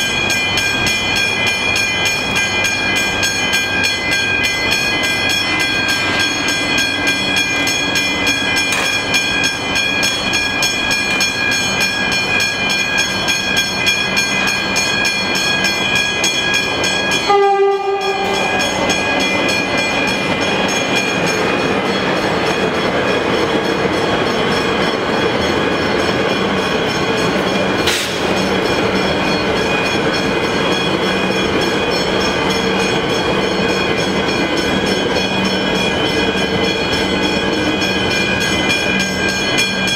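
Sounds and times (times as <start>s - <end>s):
electric train passing: 0.0s - 39.9s
level-crossing bells ringing: 0.0s - 39.9s
horn blast: 17.3s - 18.5s.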